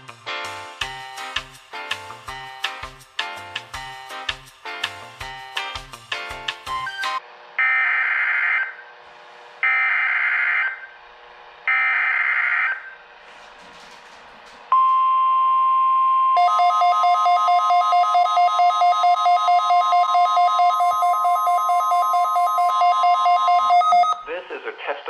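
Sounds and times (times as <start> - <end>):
steady high alarm tone: 7.6 - 8.9, 9.6 - 11.0, 11.7 - 13.0, 15.6 - 24.2
rapid pulsing beep: 16.4 - 24.2.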